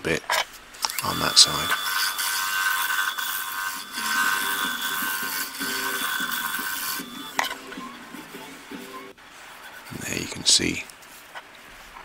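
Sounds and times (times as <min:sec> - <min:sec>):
turning tool cutting wood hiss: 0:00.8 - 0:07.8
lathe whine: 0:00.8 - 0:08.8.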